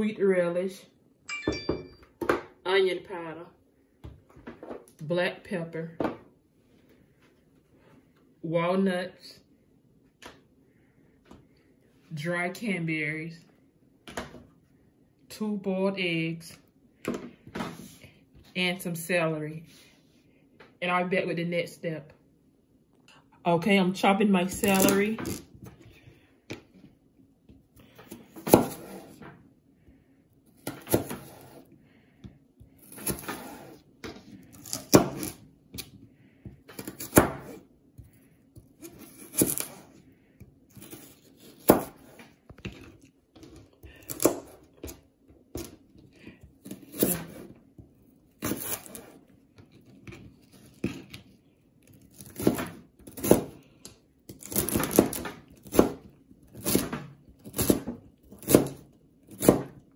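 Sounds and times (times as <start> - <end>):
knife cutting celery on cutting board: 28.1 - 29.2, 30.6 - 31.7, 32.8 - 36.0, 36.7 - 37.6, 38.6 - 40.0, 40.7 - 42.8, 46.6 - 47.6, 48.4 - 49.2, 54.3 - 59.8.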